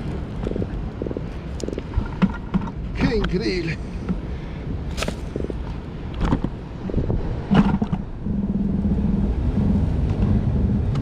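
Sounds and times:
wind rumbling on microphone: 0.0s - 11.0s
low hum: 4.9s - 11.0s.

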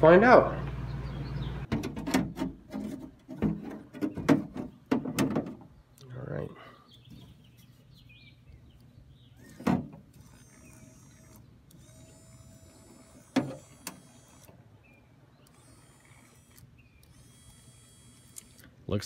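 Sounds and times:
power window motor whining: 9.4s - 14.5s.

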